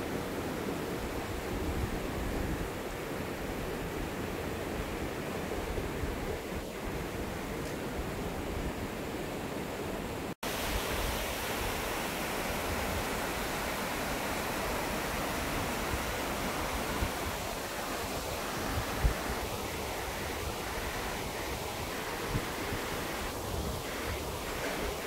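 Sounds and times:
stream rushing over rocks: 0.0s - 25.0s
wind rumble on microphone: 1.0s - 9.0s, 15.2s - 25.0s.

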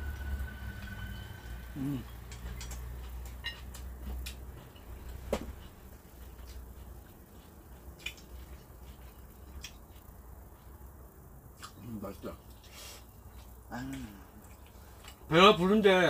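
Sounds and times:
low steady hum: 0.0s - 16.0s
chopsticks and tableware clicking: 2.2s - 5.0s.

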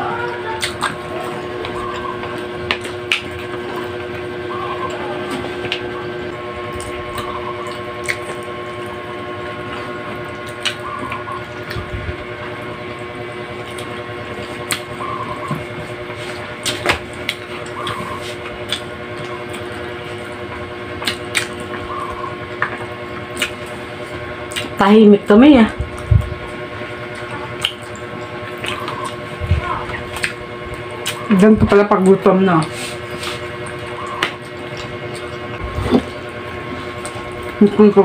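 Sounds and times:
mechanical hum: 0.0s - 38.0s
person chewing: 0.5s - 12.2s, 13.5s - 24.7s, 27.0s - 31.3s
lip smacks: 24.5s - 24.7s, 27.2s - 28.0s
fingers picking food clicks: 27.1s - 29.2s.

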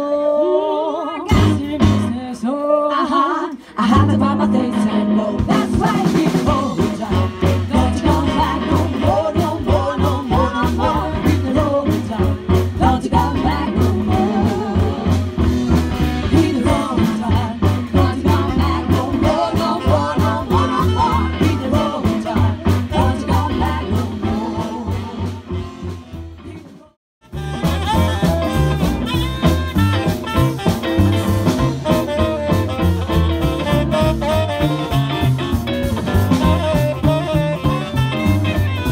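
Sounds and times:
women singing together: 0.0s - 15.4s, 16.3s - 25.5s
upright bass: 1.3s - 2.2s, 3.8s - 38.9s
electric guitar: 3.8s - 26.6s, 27.2s - 38.9s
tenor saxophone: 24.1s - 26.4s, 27.2s - 38.9s.

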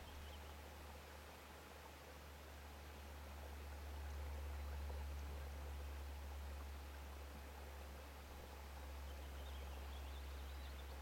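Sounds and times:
soft hiss: 0.0s - 11.0s.

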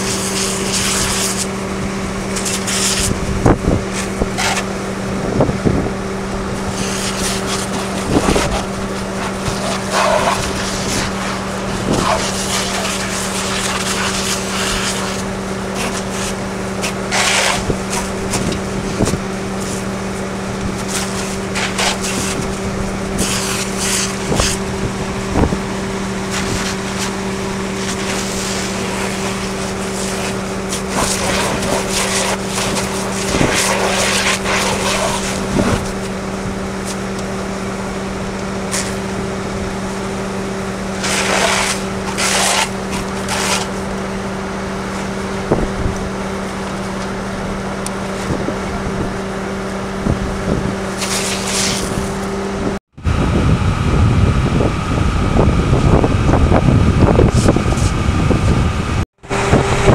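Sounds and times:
fire hose spraying water: 0.0s - 5.2s, 5.9s - 47.3s, 50.8s - 52.3s
engine droning: 0.0s - 59.9s.

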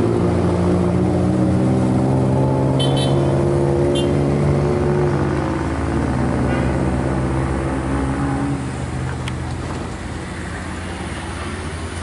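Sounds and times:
truck engine under load: 3.4s - 12.0s.

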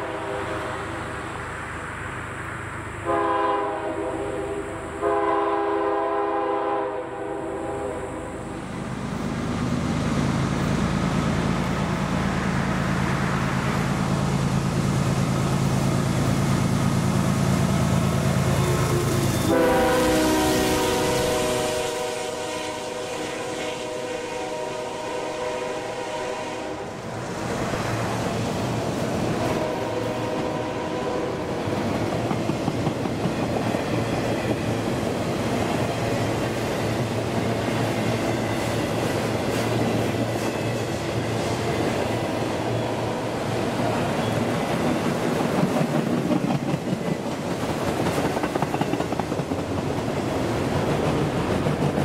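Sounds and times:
train horn chord: 0.0s - 0.8s, 3.0s - 8.2s, 18.5s - 27.0s, 29.4s - 31.5s
diesel locomotive engines: 0.0s - 52.0s
steel wheels rolling on rail: 7.3s - 52.0s.

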